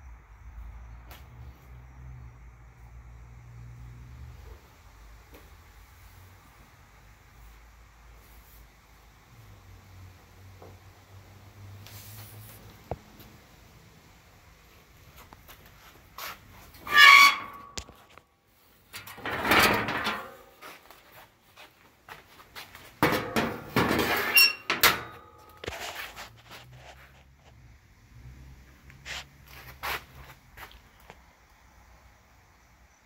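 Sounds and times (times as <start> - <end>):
scrapes and squeaks: 16.2 - 18.2, 19.0 - 20.8, 23.2 - 27.6.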